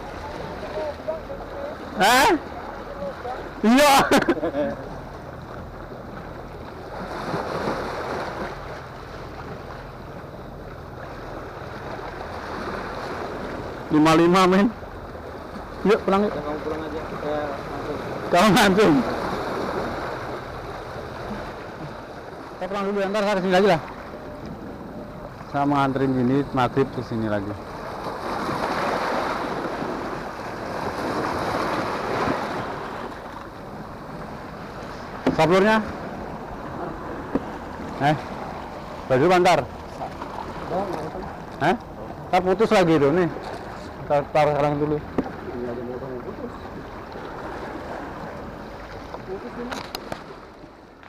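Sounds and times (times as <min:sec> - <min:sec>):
sea waves breaking on rocks: 0:00.0 - 0:24.6, 0:25.3 - 0:51.0
waves washing against rocks: 0:27.7 - 0:33.3.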